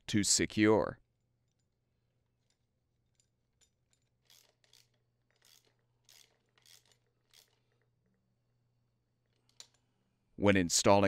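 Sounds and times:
socket ratchet clicking: 0:04.0 - 0:07.9.

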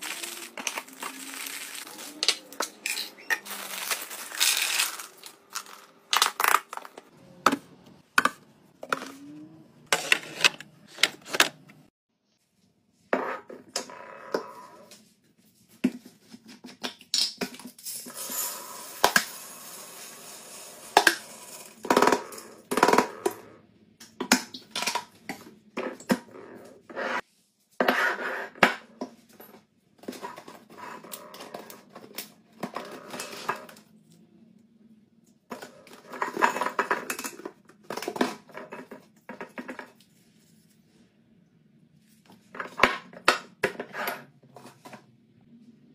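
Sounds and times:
beads pouring into glass jar: 0:00.0 - 0:02.2, 0:03.4 - 0:05.8, 0:17.8 - 0:21.8
packaging rustling: 0:00.0 - 0:07.1.

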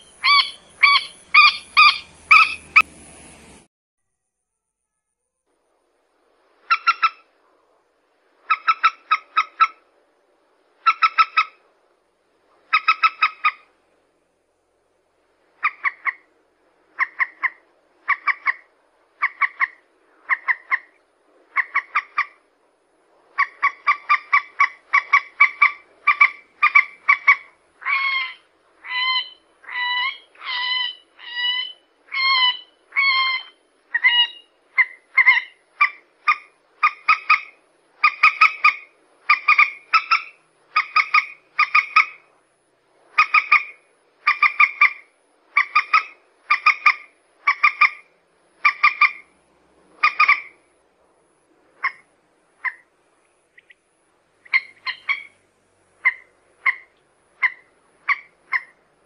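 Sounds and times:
moorhen calling: 0:00.0 - 0:02.9, 0:06.6 - 0:07.3, 0:08.4 - 0:09.9, 0:10.8 - 0:11.6, 0:12.7 - 0:13.7, 0:15.6 - 0:16.3, 0:16.9 - 0:22.5, 0:23.3 - 0:42.3, 0:43.1 - 0:50.7, 0:51.8 - 0:52.9, 0:53.5 - 0:58.8.

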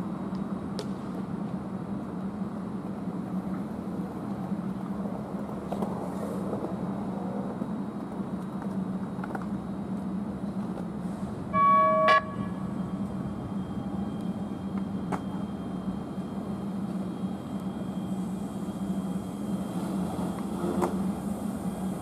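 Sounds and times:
steady low hum: 0:00.0 - 0:22.0
light rail car horn toot: 0:11.5 - 0:12.9.

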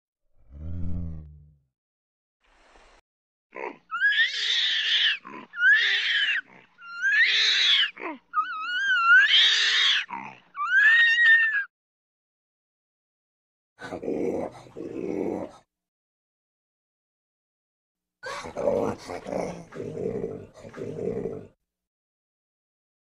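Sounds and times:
orangutan high-pitched cries: 0:03.9 - 0:11.7.

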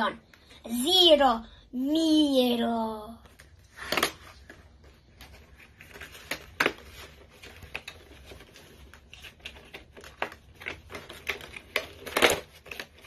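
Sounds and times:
toy box being handled: 0:03.3 - 0:13.0.

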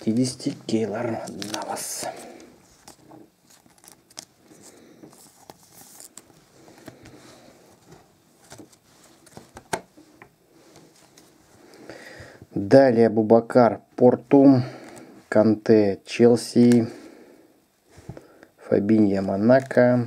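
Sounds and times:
cards sliding and rustling: 0:00.0 - 0:11.4
cards clicking and tapping: 0:09.3 - 0:09.9.

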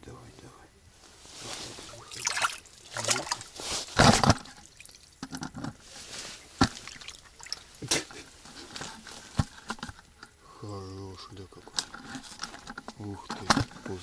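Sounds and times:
water splashing and dripping: 0:02.0 - 0:05.4, 0:06.6 - 0:07.8.

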